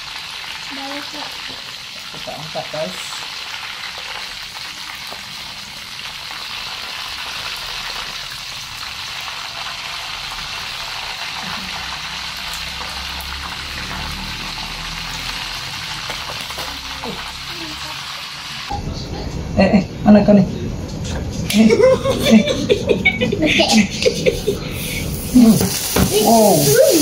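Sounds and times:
prawns sizzling in hot oil: 0.0 - 18.7, 24.6 - 27.0.

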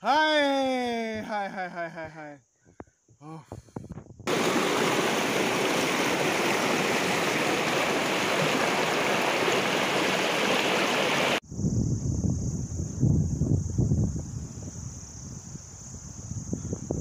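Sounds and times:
stream rushing over rocks: 4.3 - 11.4.

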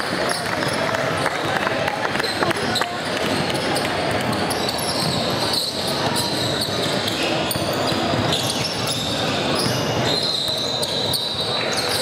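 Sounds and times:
indistinct spectators' voices: 0.0 - 12.0
sneakers on the court: 2.2 - 12.0
short high squeaks: 3.7 - 12.0.

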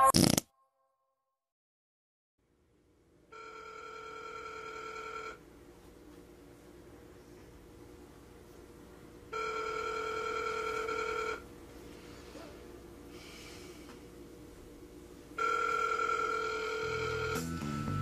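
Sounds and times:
telephone ringing: 3.3 - 5.4, 9.3 - 11.4, 15.4 - 17.4.

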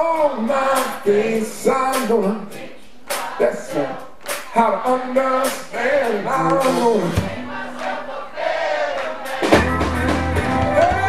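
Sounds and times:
man singing: 0.0 - 7.5, 9.4 - 11.0
drum hits: 3.1 - 7.9, 9.0 - 11.0
electric guitar: 9.4 - 11.0
electric bass: 9.5 - 11.0.

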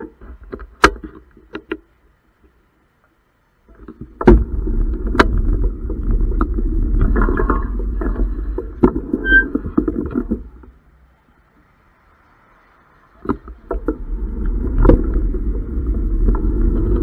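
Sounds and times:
muffled bike rumble and rattle: 0.0 - 17.0
sharp knocks over bumps: 3.8 - 10.8.

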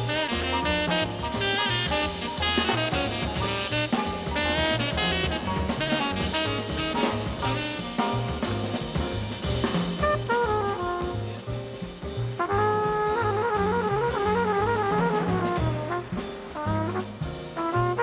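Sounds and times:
flugelhorn long held notes: 0.0 - 7.9, 12.5 - 18.0
tenor saxophone solo: 0.0 - 8.4, 10.0 - 11.4, 12.4 - 18.0
drum kit: 0.0 - 18.0
walking bass: 0.0 - 18.0.

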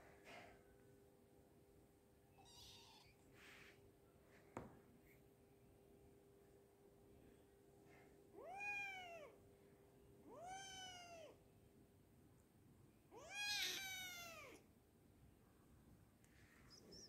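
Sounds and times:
kitten meowing: 2.4 - 3.2, 10.3 - 11.4, 13.2 - 14.6.

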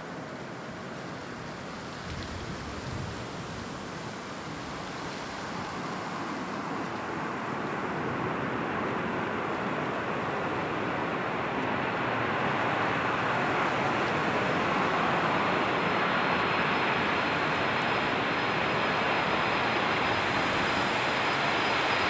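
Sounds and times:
jet engines rushing: 5.0 - 22.0
faint high whine: 5.5 - 22.0.

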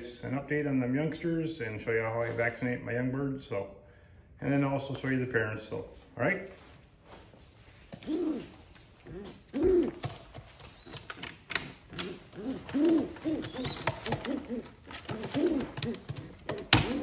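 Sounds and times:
pigeons cooing: 8.0 - 17.0.

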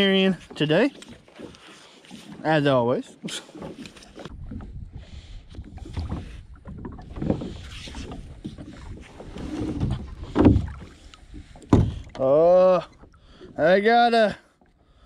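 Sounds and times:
knocks against plastic hull: 11.6 - 12.1.

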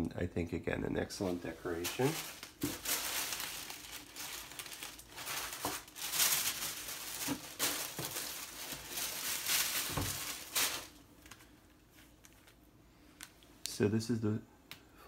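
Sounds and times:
tissue paper rustling: 1.2 - 12.6.

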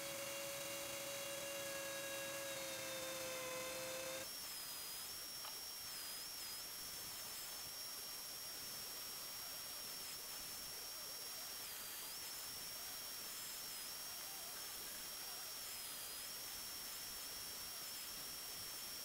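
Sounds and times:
rotary tool whining: 0.0 - 6.6.

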